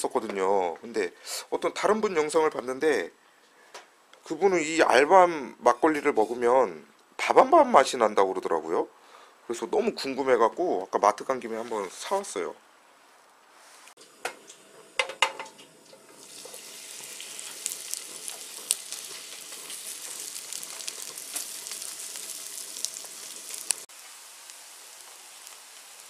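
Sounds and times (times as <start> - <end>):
hot oil sizzling and crackling: 14.0 - 26.0.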